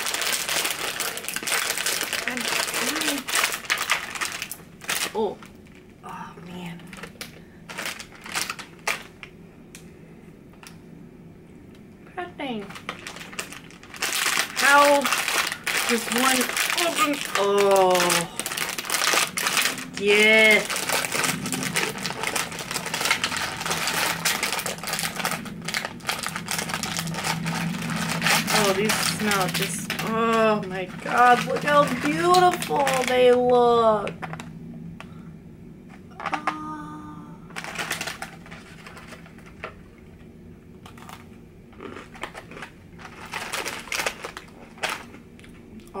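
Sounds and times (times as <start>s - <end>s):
cookie crunching: 0.0s - 5.2s, 12.8s - 33.6s, 40.8s - 45.9s
plastic packaging crinkling: 0.0s - 5.9s, 6.6s - 9.3s, 12.5s - 34.5s, 37.5s - 39.9s, 40.8s - 45.7s.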